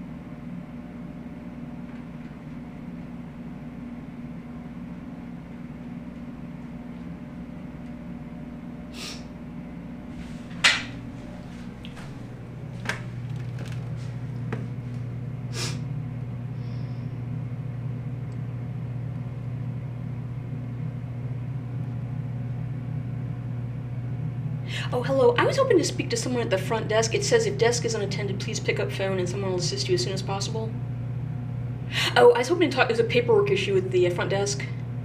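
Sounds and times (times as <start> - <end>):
low hum: 0.0 - 35.0.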